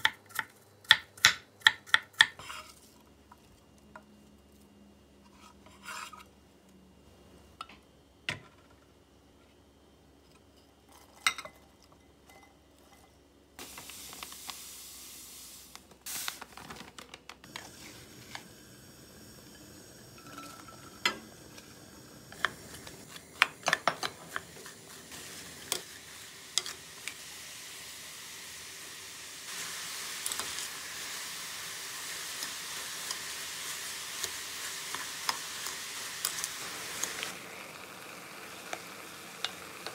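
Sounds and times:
apples sizzling in saucepan: 0:13.6 - 0:16.7, 0:17.4 - 0:39.9
steady hiss: 0:13.6 - 0:16.8, 0:17.4 - 0:39.9.

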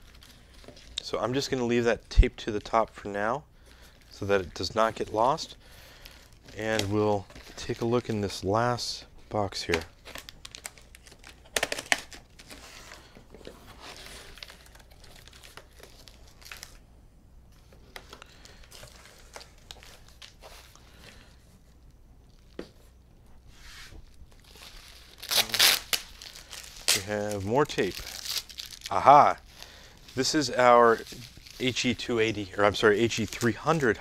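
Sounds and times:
plastic wrap crinkling: 0:03.7 - 0:16.8, 0:17.6 - 0:22.9, 0:24.0 - 0:34.0
packing tape tearing: 0:09.6 - 0:12.6, 0:24.3 - 0:29.0.

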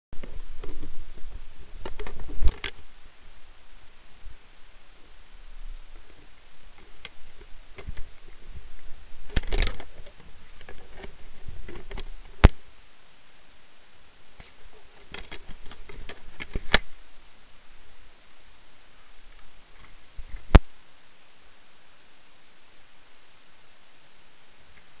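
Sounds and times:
sharp clicks: 0:09.3 - 0:11.1, 0:14.4 - 0:16.9.

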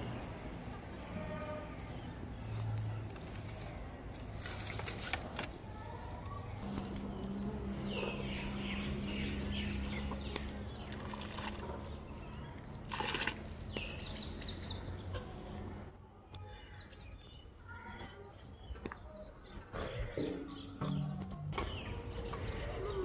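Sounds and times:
birds chirping: 0:06.5 - 0:23.0.

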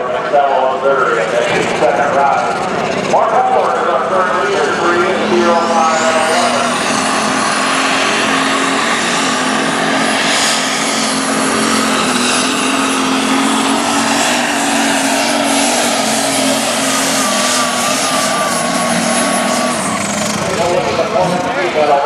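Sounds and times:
diesel tractor engine running flat out: 0:00.0 - 0:22.0
high turbo whistle: 0:12.2 - 0:20.3.

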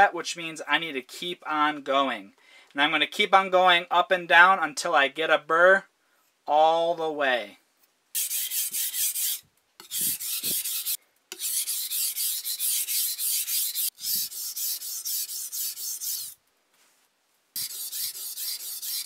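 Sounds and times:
knife scraping on whetstone: 0:08.2 - 0:16.4, 0:17.6 - 0:19.0.

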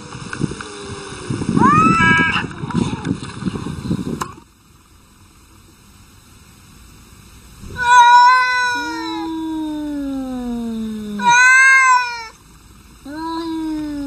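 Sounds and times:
cats fighting: 0:07.6 - 0:12.4, 0:13.0 - 0:14.0
cat yowling: 0:07.7 - 0:12.4, 0:13.1 - 0:14.0.

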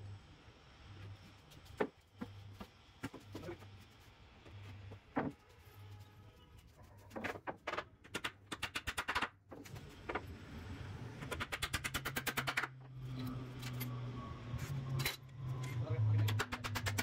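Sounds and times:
hammer striking nails: 0:07.6 - 0:09.4, 0:11.2 - 0:12.8, 0:16.3 - 0:17.0.

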